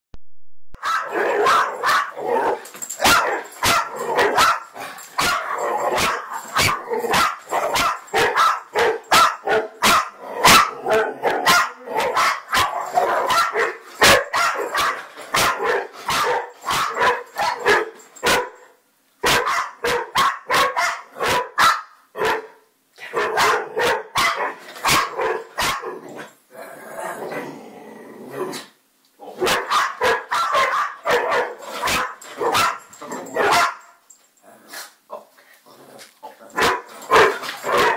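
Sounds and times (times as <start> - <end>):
dog barking rapidly: 0.8 - 2.2, 3.0 - 18.6, 19.2 - 22.6, 23.2 - 25.9, 29.4 - 33.9, 36.6 - 37.9.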